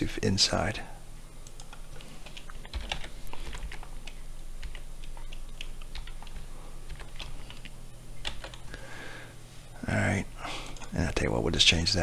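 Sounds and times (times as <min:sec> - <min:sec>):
typing on computer keyboard: 0:01.4 - 0:08.6.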